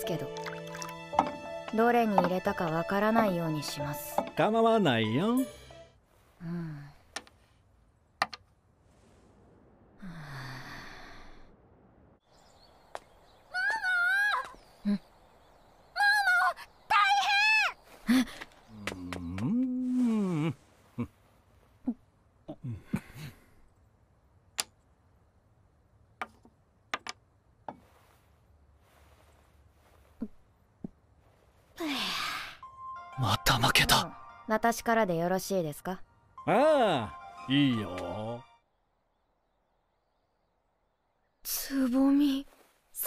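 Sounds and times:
game piece clacking on wooden board: 8.2s - 8.4s, 26.2s - 27.2s
person sighing: 10.0s - 11.5s, 19.0s - 21.2s, 21.8s - 23.6s.

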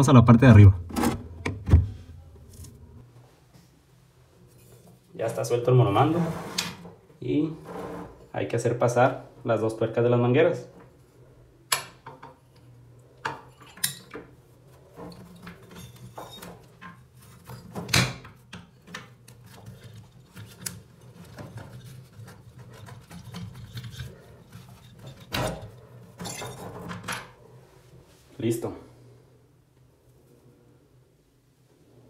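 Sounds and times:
metal hoses scraping and clinking on stone: 15.0s - 17.7s, 19.6s - 26.9s.

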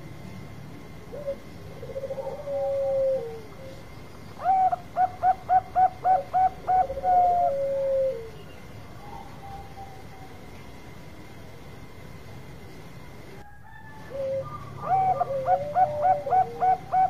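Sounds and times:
dove cooing: 1.1s - 3.8s, 4.4s - 8.4s, 13.9s - 17.0s.

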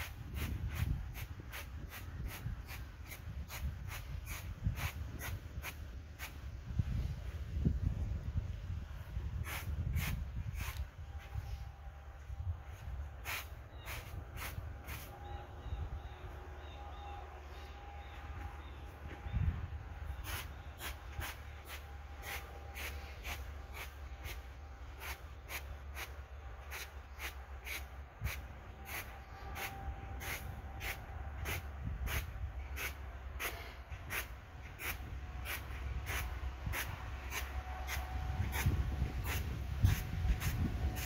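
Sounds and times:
push broom sweeping artificial grass: 0.0s - 6.6s, 20.1s - 41.0s.

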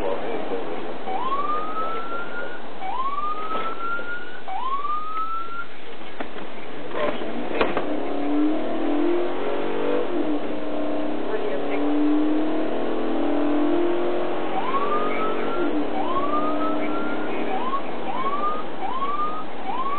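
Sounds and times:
car engine and road noise: 0.0s - 19.9s
police siren whoops: 1.1s - 5.7s, 14.5s - 19.9s.

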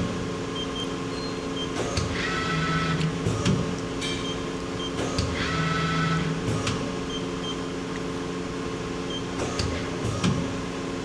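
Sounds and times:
machine hum: 0.0s - 11.0s.

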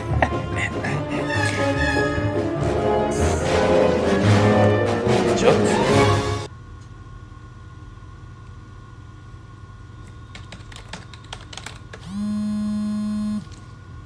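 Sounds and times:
keyboard typing: 10.3s - 12.4s
phone vibrating: 12.0s - 13.6s.

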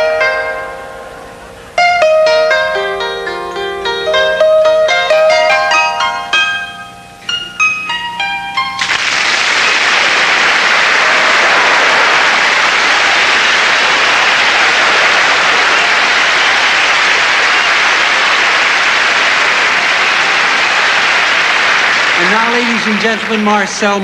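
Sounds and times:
audience applauding: 8.8s - 24.0s.

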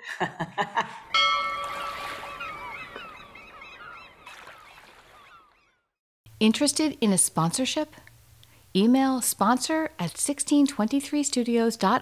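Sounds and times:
bell-like tone ringing: 1.1s - 4.0s
bird calls: 1.3s - 5.9s.

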